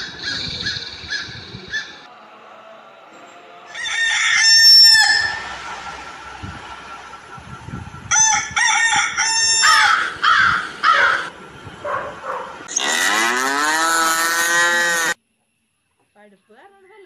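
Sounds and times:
rooster crowing: 0:03.7 - 0:05.8, 0:08.1 - 0:11.3
chickens clucking and squawking: 0:03.7 - 0:07.1.

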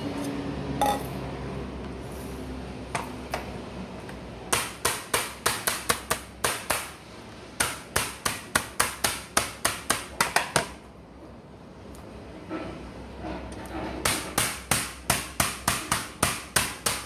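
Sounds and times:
meat mallet pounding chicken: 0:14.0 - 0:17.0.

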